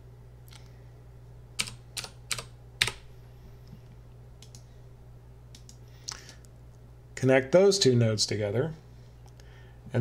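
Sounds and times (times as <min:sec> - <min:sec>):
low steady hum: 0:00.0 - 0:10.0
keyboard keystrokes: 0:01.6 - 0:03.0.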